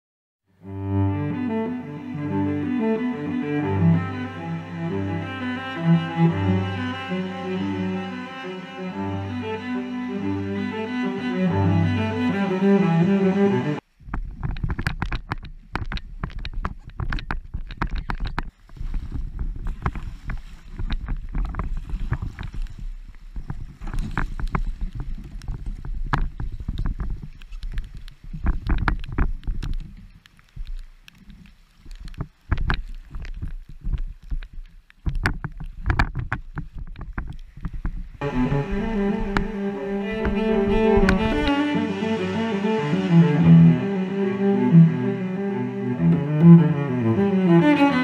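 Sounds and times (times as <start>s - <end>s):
kayak hull and paddle splashes: 13.8s - 48.0s
wind rumble on microphone: 13.8s - 48.0s.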